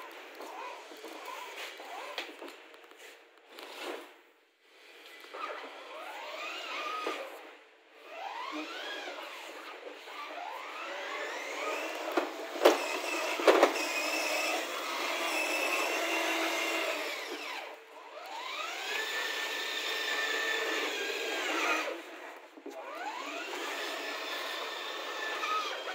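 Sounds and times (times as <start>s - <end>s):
electric motor whining: 8.0s - 25.9s.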